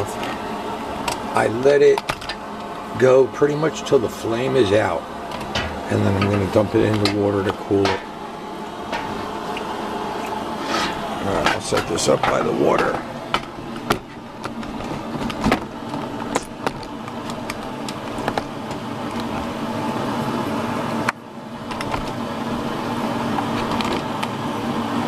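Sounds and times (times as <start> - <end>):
mechanical hum: 0.0 - 25.0
handling clicks and knocks: 5.3 - 7.2, 10.8 - 19.5.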